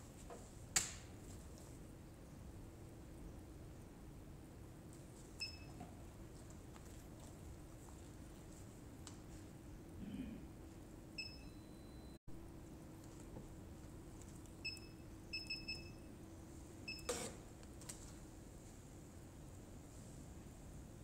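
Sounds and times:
faint steady hum: 0.0 - 21.0
electronic scale beeping: 5.4 - 5.8, 11.2 - 12.2, 14.6 - 16.1, 16.9 - 17.3.

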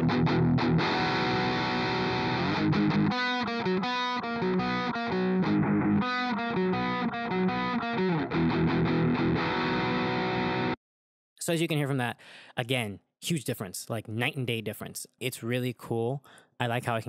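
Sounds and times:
distorted electric guitar chords: 0.0 - 10.8.

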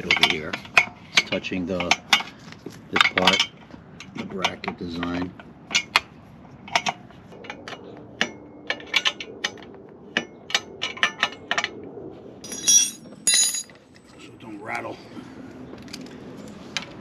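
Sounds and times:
ringing metal clangs: 12.4 - 13.7.

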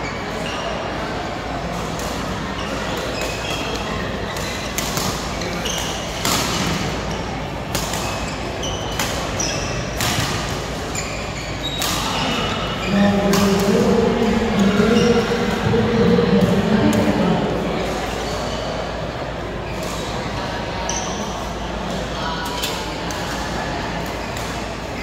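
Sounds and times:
shoe squeaks: 2.6 - 6.2, 8.0 - 10.1, 10.9 - 13.1, 20.9 - 21.4.

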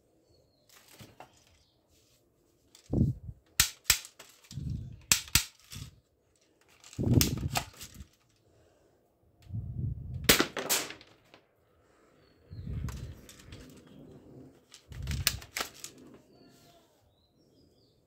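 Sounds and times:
toy gun rubbing and knocking: 2.8 - 6.0, 6.6 - 8.2, 14.6 - 16.2
plastic toy gun clicks: 3.5 - 5.9, 6.6 - 8.1, 14.9 - 15.9.

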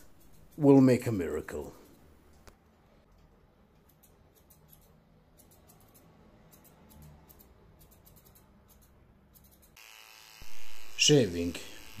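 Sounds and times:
scissors snipping through fur: 3.8 - 9.8.

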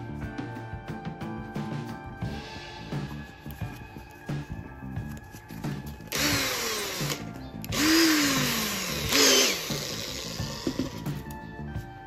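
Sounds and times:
background music: 0.0 - 12.0
cordless drill running: 6.1 - 11.0.

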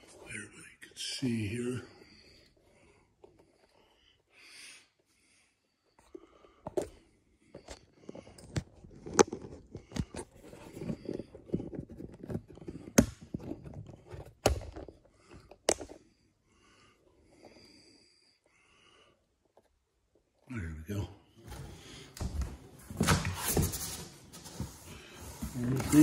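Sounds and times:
rubbing and scraping: 22.8 - 26.0.

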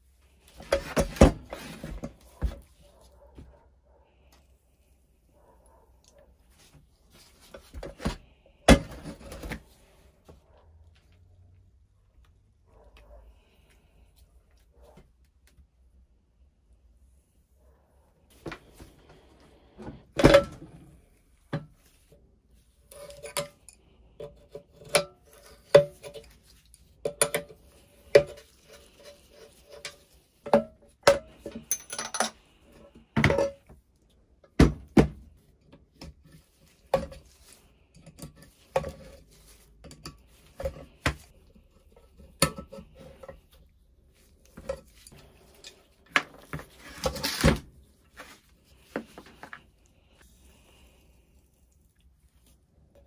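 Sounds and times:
metallic clinks and knocks: 31.1 - 32.4.

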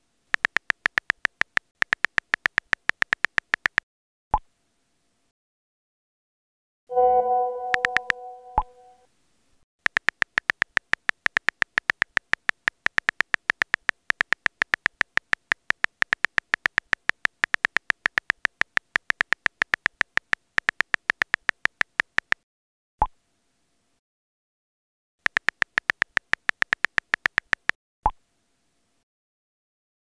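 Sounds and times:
phone keyboard clicks: 0.3 - 3.8, 7.6 - 8.8, 9.8 - 22.4, 25.2 - 27.8
message sent pop: 6.9 - 9.0.

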